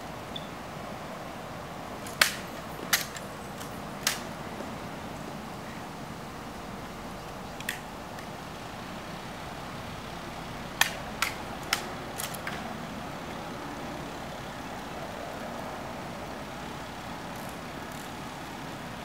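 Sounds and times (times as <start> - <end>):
rifle clicks and slaps: 2.0 - 4.3, 7.6 - 8.3, 10.8 - 12.6.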